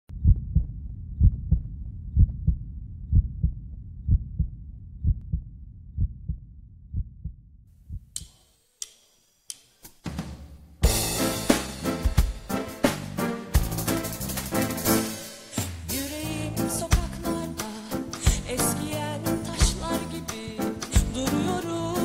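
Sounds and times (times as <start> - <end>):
heartbeat double thump: 0.1 - 8.1.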